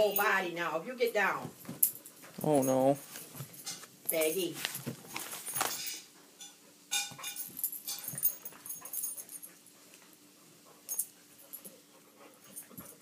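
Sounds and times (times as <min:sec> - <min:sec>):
dogs scuffling: 0:01.2 - 0:06.2.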